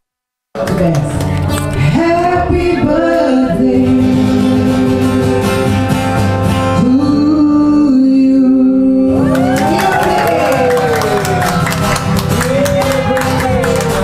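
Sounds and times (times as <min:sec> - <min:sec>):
guitar accompaniment: 0:00.6 - 0:14.0
woman singing into a microphone: 0:01.8 - 0:05.7, 0:06.7 - 0:09.4.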